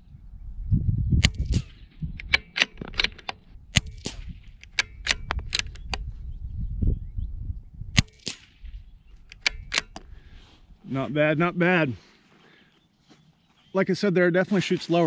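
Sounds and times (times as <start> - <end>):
rifle bolt clicking: 1.2 - 6.1, 9.2 - 10.1.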